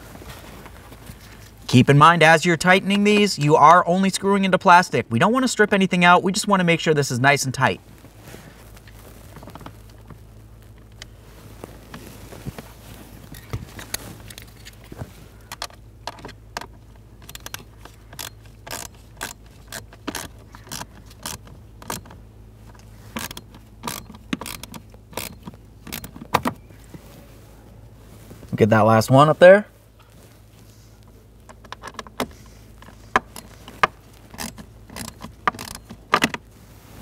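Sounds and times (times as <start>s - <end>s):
screwdriver scraping: 17.3s - 22.1s, 23.1s - 26.2s, 32.8s - 36.3s.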